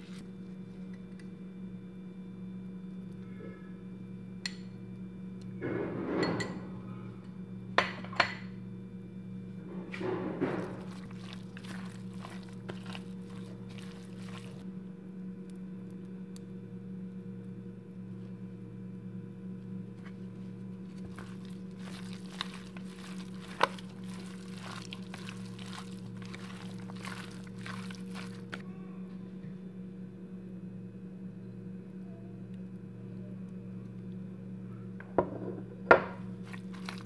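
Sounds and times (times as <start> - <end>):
wet squelching of raw chicken: 0.0 - 0.2, 10.4 - 14.6, 20.8 - 28.6, 36.3 - 37.0
steady low hum: 8.5 - 37.0.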